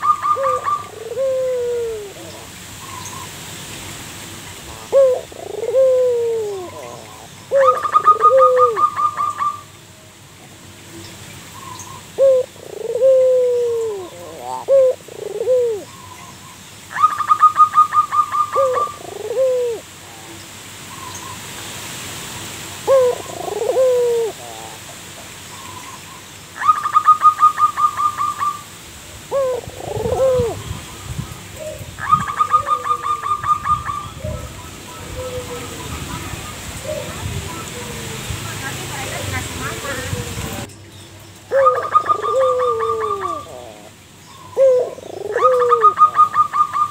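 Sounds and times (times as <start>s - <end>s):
dove cooing: 0.0s - 3.1s, 4.6s - 9.7s, 12.2s - 15.9s, 16.9s - 20.4s, 22.8s - 25.0s, 29.2s - 38.2s, 41.5s - 46.9s.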